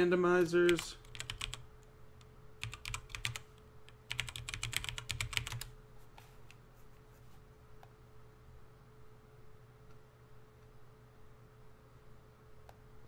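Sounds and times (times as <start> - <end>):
faint steady hum: 0.0 - 13.0
typing on a keyboard: 0.7 - 1.6, 2.6 - 5.7.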